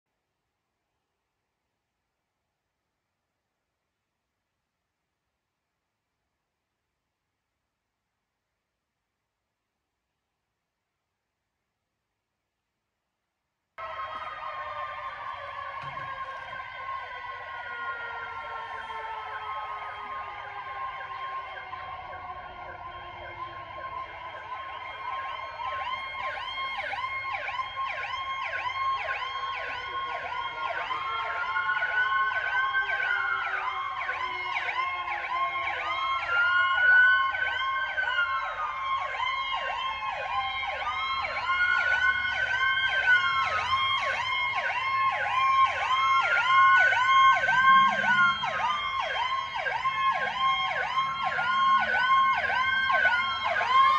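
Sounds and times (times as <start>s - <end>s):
sirens wailing: 13.8s - 53.9s
sirens yelping: 13.8s - 53.9s.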